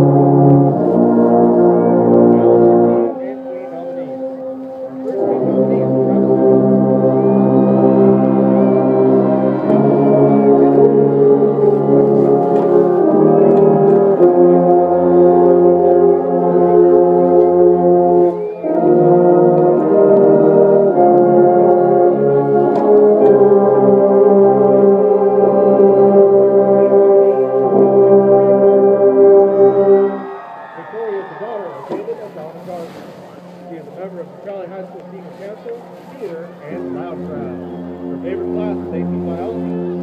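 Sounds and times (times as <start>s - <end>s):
marching band brass chords: 0.0s - 40.0s.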